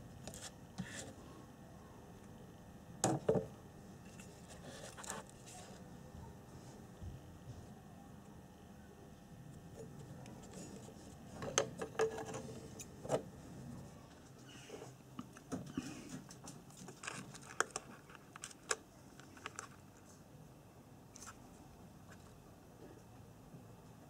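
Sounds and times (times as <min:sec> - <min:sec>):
small parts clicking and tapping: 0:15.2 - 0:20.1.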